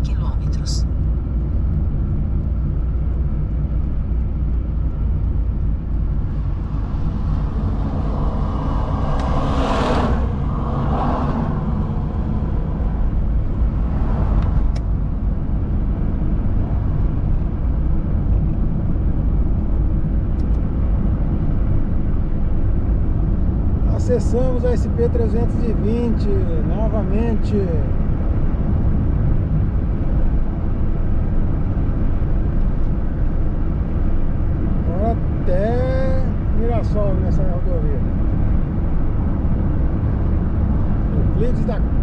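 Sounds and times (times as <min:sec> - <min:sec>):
car tyres and engine rumble: 0:00.0 - 0:42.0
vehicle passing: 0:06.0 - 0:15.4.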